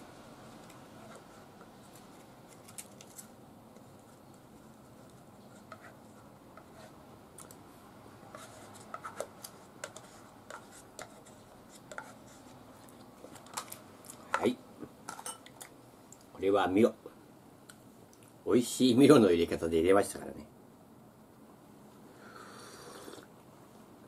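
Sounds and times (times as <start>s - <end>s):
spoon scraping yogurt cup: 8.3s - 12.6s.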